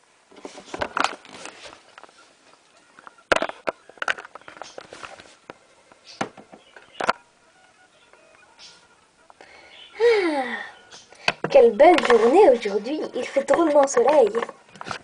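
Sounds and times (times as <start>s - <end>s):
camera handling rustles and clicks: 0.4s - 2.1s, 3.0s - 5.6s.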